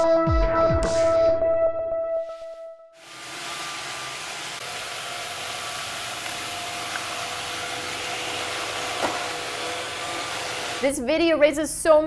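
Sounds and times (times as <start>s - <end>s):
robotic vacuum cleaner whirring: 3.0s - 11.0s.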